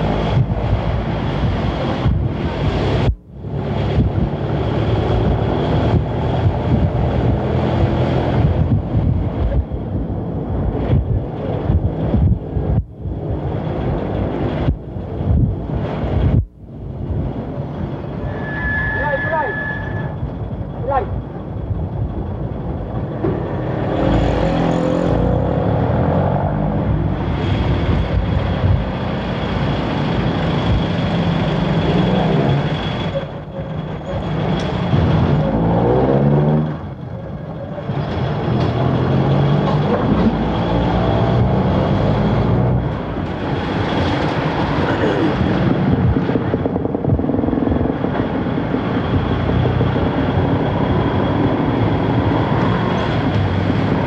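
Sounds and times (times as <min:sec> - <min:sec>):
road noise: 0:00.0 - 0:54.0
vehicle engine revving: 0:23.0 - 0:33.2, 0:34.2 - 0:37.1, 0:37.8 - 0:54.0.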